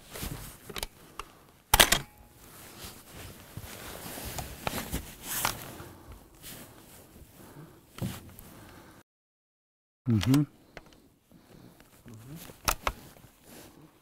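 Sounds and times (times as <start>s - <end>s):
handling clicks and rustles: 0.0s - 6.9s, 11.7s - 13.5s
rifle bolt metallic clacks: 1.7s - 2.2s.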